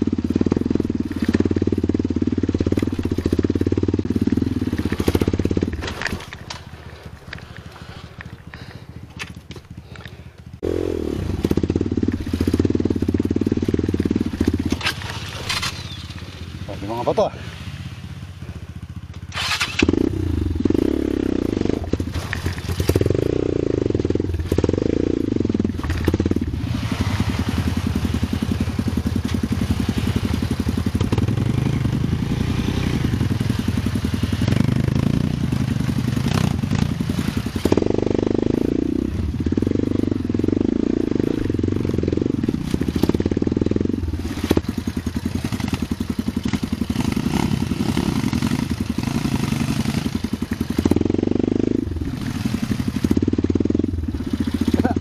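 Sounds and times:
motorcycle engine revving: 0.0s - 55.0s
bike clattering over rocks: 4.8s - 10.1s, 13.9s - 16.3s, 25.8s - 26.2s.

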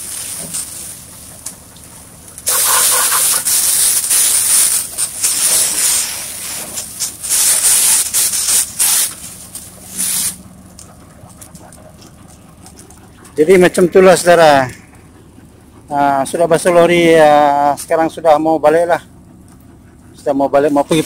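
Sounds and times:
hose water spraying on metal: 0.0s - 10.5s.

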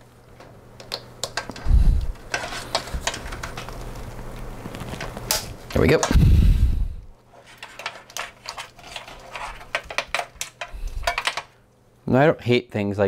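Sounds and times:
plastic and wires clicking rattling: 0.8s - 4.1s, 7.5s - 11.5s.

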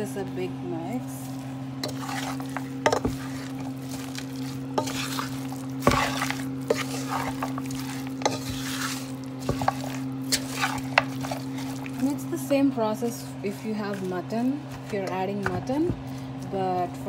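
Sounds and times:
steady low hum: 0.0s - 17.0s
light sizzle: 0.8s - 15.3s
spoon stirring and scraping pot: 1.3s - 16.2s.

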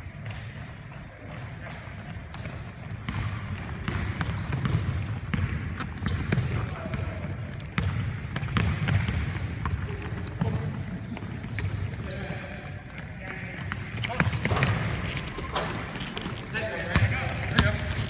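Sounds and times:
sneakers squeaking on court: 0.0s - 18.0s
basketball bouncing on hardwood floor: 1.3s - 6.9s, 7.7s - 10.6s.

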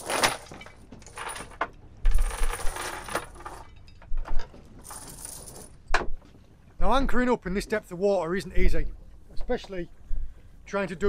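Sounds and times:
anchor chain rattling: 0.0s - 5.9s.

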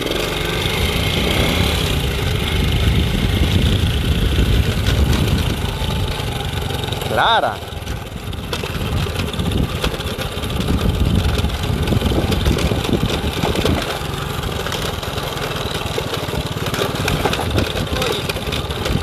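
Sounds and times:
knocks and rattles from bumpy ride: 0.0s - 19.0s
small engine running: 0.0s - 19.0s.

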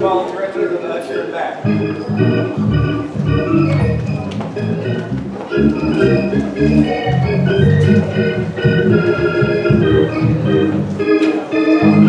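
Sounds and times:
church organ playing chords: 1.6s - 12.0s.

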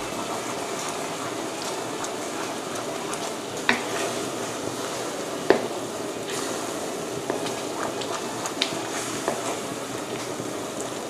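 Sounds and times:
sugar syrup bubbling: 0.0s - 11.0s
wooden spoon knocking on wok: 3.1s - 4.1s, 5.4s - 5.8s, 7.2s - 8.0s.

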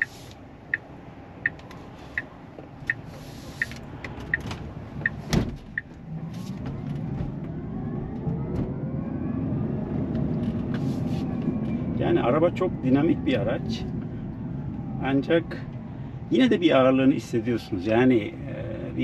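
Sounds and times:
turn signal ticking: 0.0s - 6.0s
road noise: 0.0s - 19.0s
thump: 5.3s - 5.6s.

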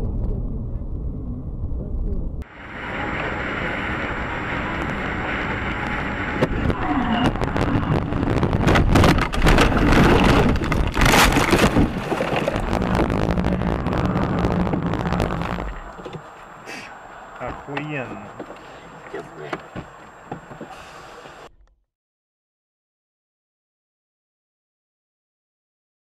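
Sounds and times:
car road noise: 0.0s - 21.5s
steady hum: 0.0s - 21.5s
car rumbling and rattling: 0.0s - 21.7s.

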